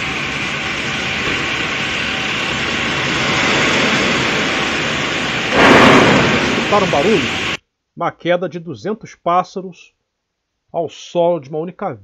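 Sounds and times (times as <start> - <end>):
flock plunging burst: 3.1 - 7.6.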